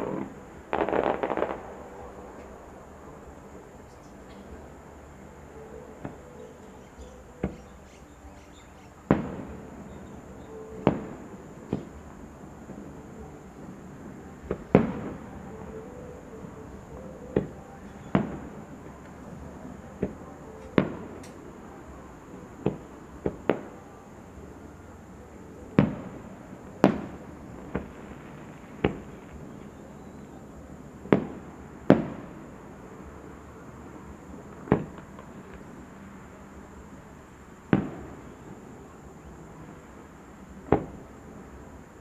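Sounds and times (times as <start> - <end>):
firework shells bursting: 0.0 - 2.6.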